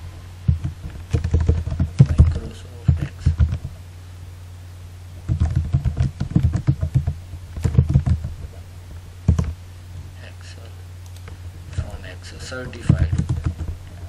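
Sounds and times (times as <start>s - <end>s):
steady low hum: 0.0s - 14.0s
keyboard typing clicks: 5.3s - 8.3s, 12.9s - 13.7s.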